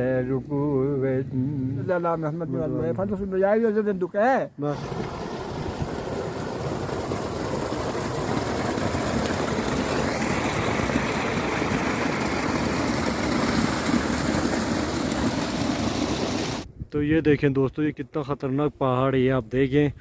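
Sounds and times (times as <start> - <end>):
water splashing into channel: 4.7 - 16.7.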